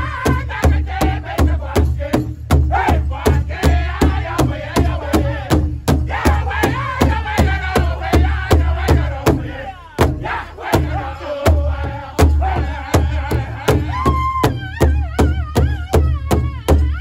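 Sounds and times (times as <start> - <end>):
group singing in high voices: 0.0 - 14.3
big drum beats: 0.0 - 17.0.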